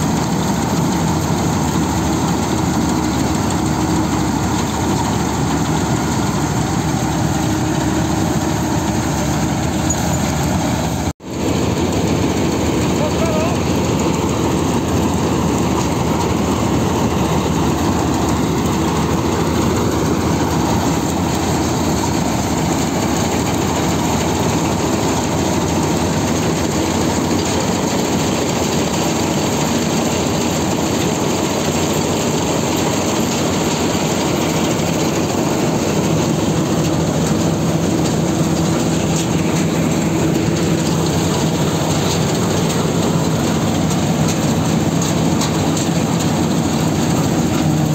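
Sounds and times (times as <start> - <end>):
combine harvester running: 0.0 - 47.9.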